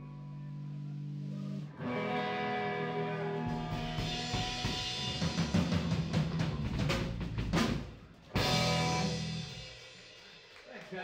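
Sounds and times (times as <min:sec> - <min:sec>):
electric guitar chords: 0:00.0 - 0:06.9, 0:08.4 - 0:09.8
drum kit playing: 0:03.4 - 0:10.7.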